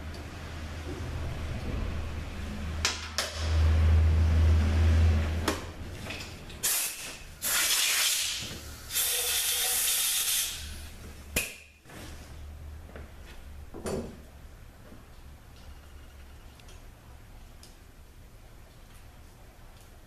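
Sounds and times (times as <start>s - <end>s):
air blow gun hissing: 6.6s - 10.9s.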